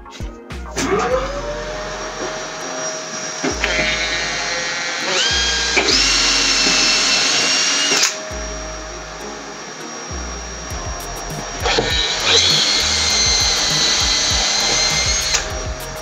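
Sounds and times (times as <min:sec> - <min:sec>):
cordless drill boring into board: 0:02.0 - 0:08.3, 0:11.6 - 0:15.7.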